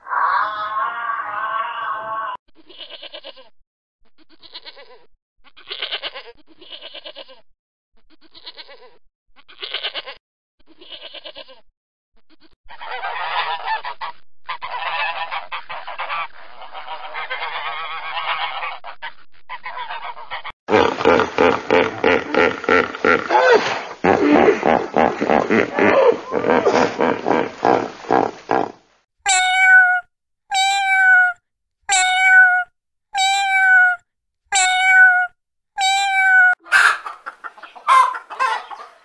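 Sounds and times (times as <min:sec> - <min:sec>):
goat bleating: 0:02.6 - 0:03.5, 0:04.2 - 0:07.4, 0:08.2 - 0:11.6, 0:33.2 - 0:36.6.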